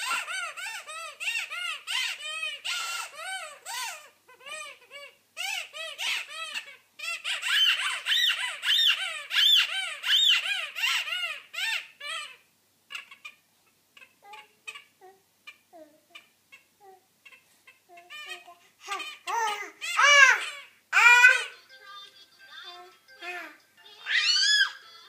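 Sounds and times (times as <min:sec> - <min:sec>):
baby squealing: 0:00.0 - 0:13.4, 0:17.2 - 0:21.6, 0:23.2 - 0:24.8
baby vocal sounds: 0:14.0 - 0:21.6, 0:22.8 - 0:24.8.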